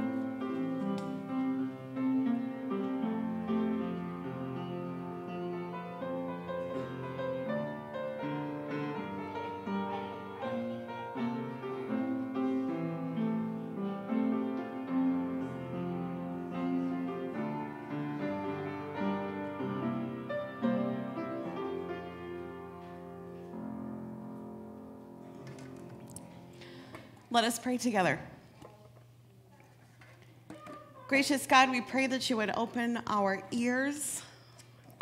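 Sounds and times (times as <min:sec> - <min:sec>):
slow piano melody: 0:00.0 - 0:26.9.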